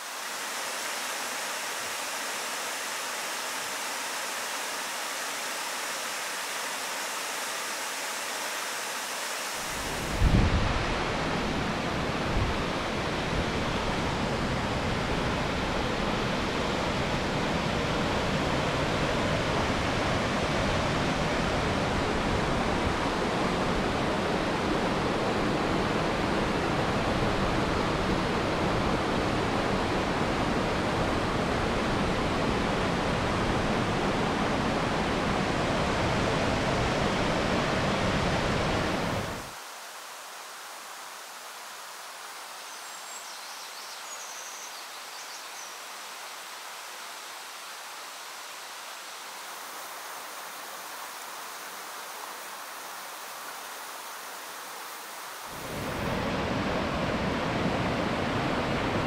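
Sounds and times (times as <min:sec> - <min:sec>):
waterfall rushing: 0:00.0 - 0:13.8, 0:45.8 - 0:59.0.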